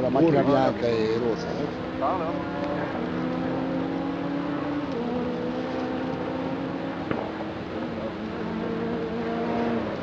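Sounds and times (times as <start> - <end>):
distant rally car engine revving: 0.0 - 10.0.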